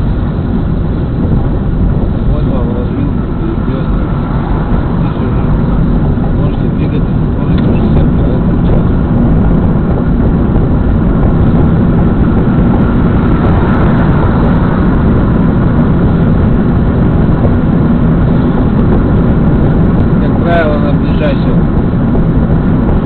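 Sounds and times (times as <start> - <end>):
car engine and road noise: 0.0 - 23.0.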